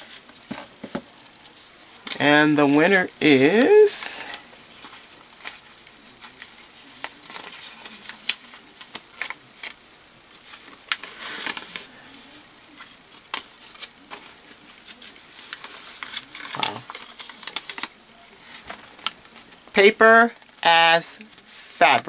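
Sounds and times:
paper rustling and crinkling: 4.1s - 20.6s.

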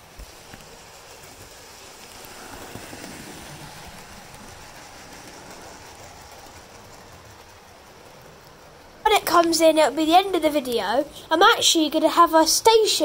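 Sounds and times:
model train running on track: 0.0s - 13.0s.

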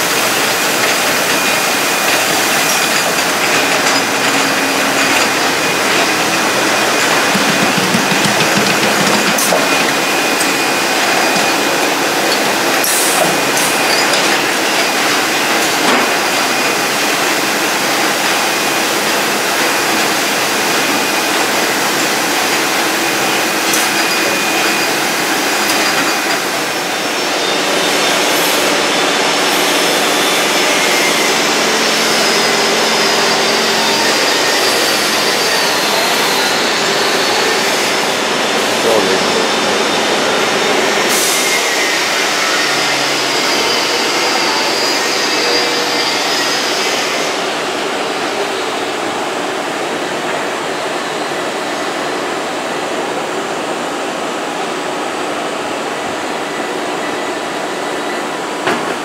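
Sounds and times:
packing machinery running: 0.0s - 48.5s
sharp clicks and knocks: 5.0s - 10.5s.

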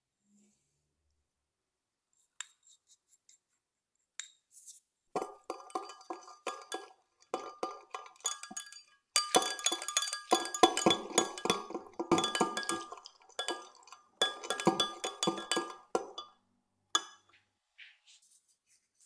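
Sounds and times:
metal utensil clinking on glass: 5.2s - 16.4s.

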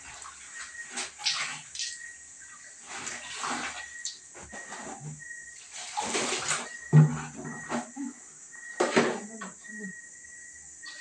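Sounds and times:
water splashing into bucket: 0.0s - 4.8s, 5.6s - 7.2s
wet cloth squeezed and sloshed: 0.0s - 4.8s, 5.6s - 6.8s.

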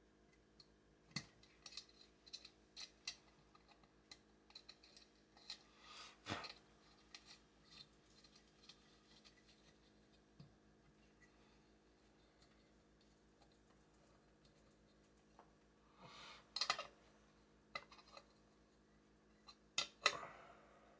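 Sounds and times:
small metal parts clicking and tapping: 0.3s - 5.7s, 6.4s - 10.5s, 12.1s - 15.5s, 16.5s - 17.0s, 19.4s - 20.2s.

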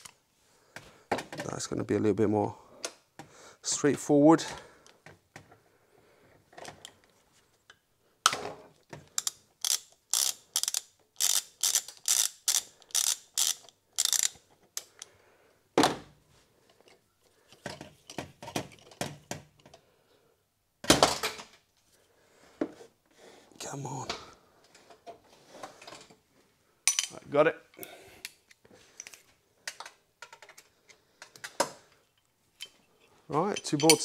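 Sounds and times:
socket ratchet clicking: 9.1s - 15.1s.

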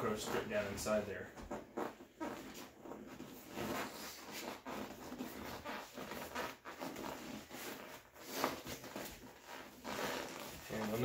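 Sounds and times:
vinyl seat cover rustling: 2.5s - 11.0s.

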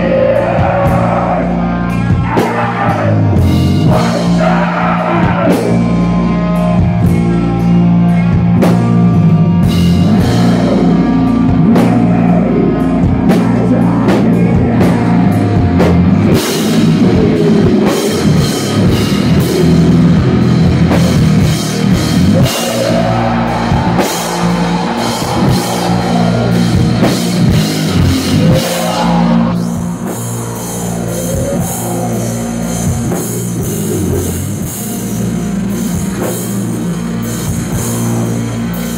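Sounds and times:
bass guitar: 0.0s - 38.9s
drum kit: 0.0s - 38.9s
electric guitars: 0.0s - 38.9s.

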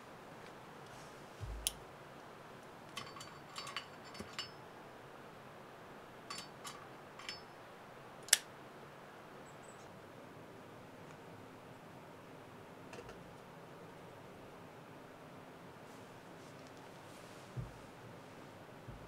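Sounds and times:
metal stove parts clinking: 2.9s - 4.6s, 6.3s - 7.6s.

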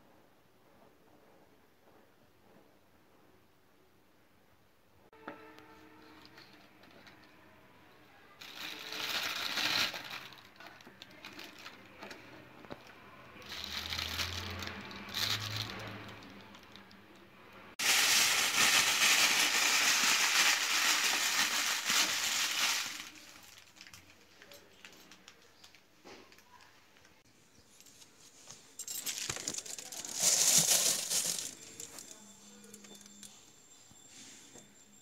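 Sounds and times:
plastic bag crinkling: 8.4s - 12.2s, 13.4s - 16.9s, 17.8s - 25.8s, 28.9s - 32.3s
bag shaken rustling: 17.8s - 23.6s, 28.9s - 32.2s.

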